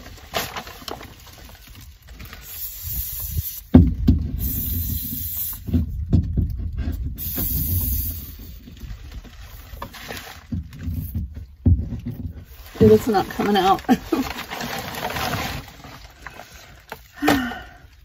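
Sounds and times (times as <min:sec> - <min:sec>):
aerosol can hissing: 0:02.4 - 0:03.7, 0:04.4 - 0:05.7, 0:07.2 - 0:08.5.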